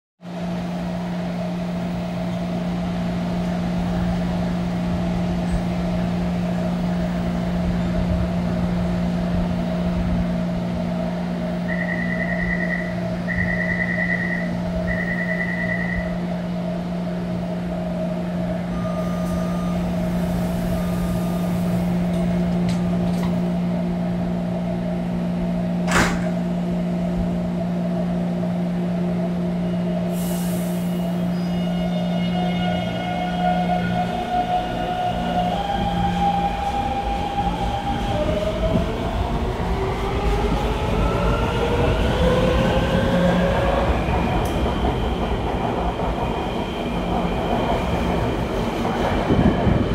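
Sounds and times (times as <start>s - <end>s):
train equipment hum: 0.3s - 49.9s
train doors shutting knock: 22.0s - 23.5s, 25.8s - 26.6s.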